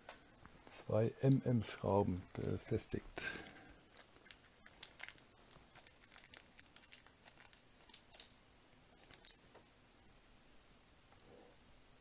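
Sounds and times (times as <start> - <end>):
small plastic parts scratching and clicking: 3.9 - 8.4, 9.0 - 9.7.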